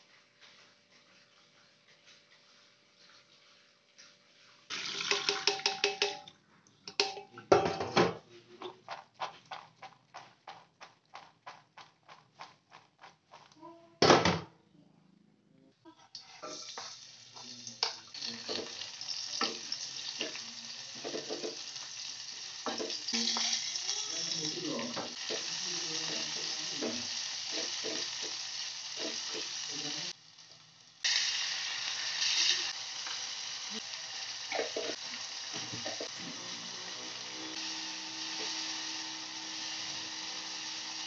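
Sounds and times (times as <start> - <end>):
oil sizzling in a pot: 0.0 - 6.2, 16.2 - 41.0
steel bowl clattering: 4.7 - 6.3
tap water running: 4.7 - 6.3, 16.7 - 30.1, 34.3 - 40.9
utensil knocking against pot: 5.2 - 6.2.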